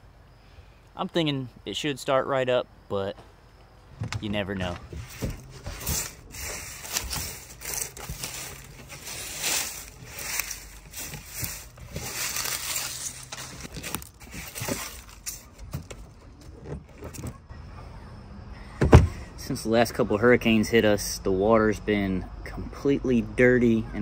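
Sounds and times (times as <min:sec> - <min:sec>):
crunching and rustling of dry material: 0:04.3 - 0:16.0.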